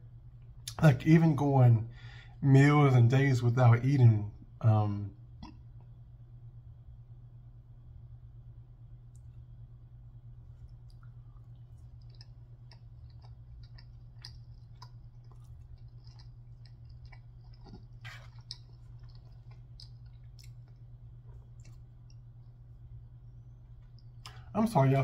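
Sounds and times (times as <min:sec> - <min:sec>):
steady low hum: 0:00.0 - 0:25.0
wet chewing sounds: 0:10.2 - 0:24.5.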